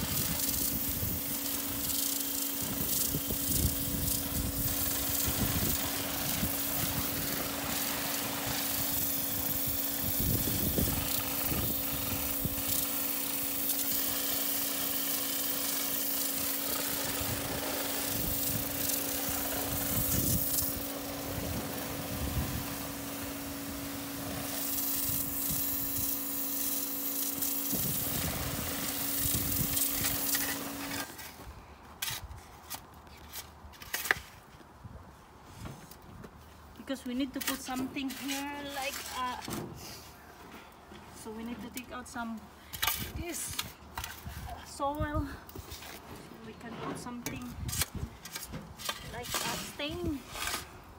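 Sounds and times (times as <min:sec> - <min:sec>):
pressure washer humming: 0:00.0 - 0:31.1
shovel digging into soil: 0:29.2 - 0:31.4, 0:32.0 - 0:34.5, 0:36.9 - 0:40.0, 0:41.7 - 0:44.6, 0:45.6 - 0:50.8.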